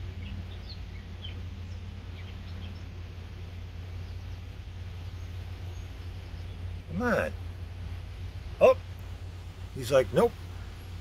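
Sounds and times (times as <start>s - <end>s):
steady low rumble: 0.0s - 11.0s
faint bird chirps: 3.8s - 7.2s.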